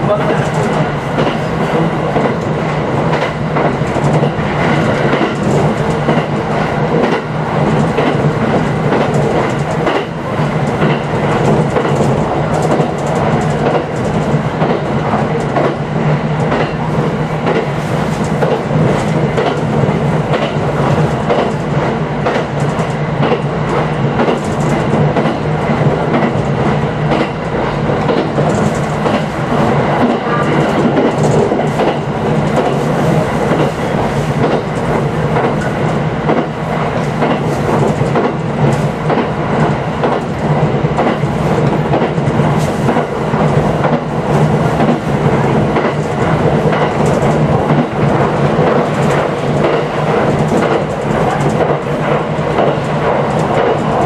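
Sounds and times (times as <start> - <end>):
train wheels rumbling on rail: 0.0 - 54.0
wheels clacking over rail joints: 3.1 - 15.8, 17.4 - 29.3, 30.0 - 39.4, 41.0 - 54.0.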